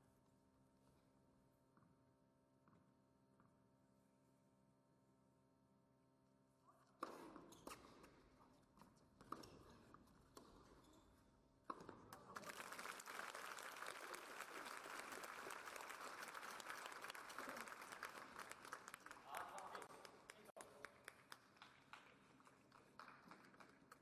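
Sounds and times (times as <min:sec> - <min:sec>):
crowd applause: 0:12.3 - 0:24.0.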